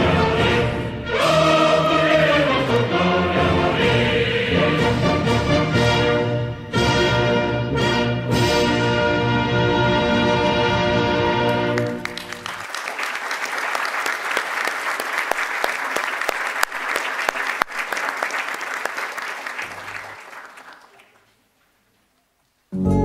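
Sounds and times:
audience applause: 11.7 - 21.3.

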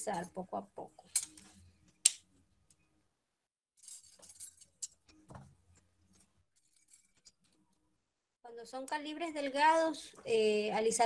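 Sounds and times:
wire rustling: 3.8 - 7.7.

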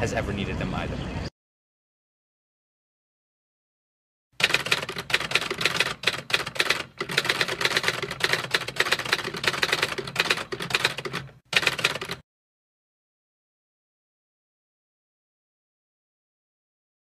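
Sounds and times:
typewriter keys clacking: 4.4 - 12.2.

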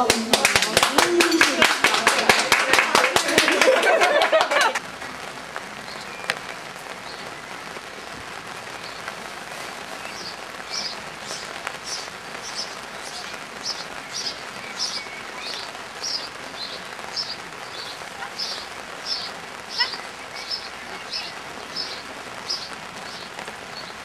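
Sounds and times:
applause: 0.0 - 7.9
rain hissing on ground: 0.0 - 24.0
bird chirping: 9.9 - 24.0.

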